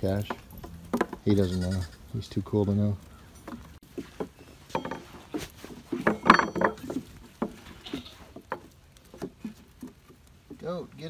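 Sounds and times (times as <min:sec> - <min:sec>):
wooden knocks and taps: 0:00.2 - 0:01.3, 0:03.0 - 0:07.6, 0:08.3 - 0:10.6.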